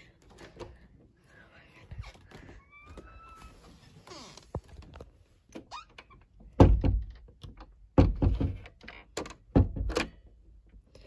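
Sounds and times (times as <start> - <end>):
door thunks and rattles: 6.4 - 10.2.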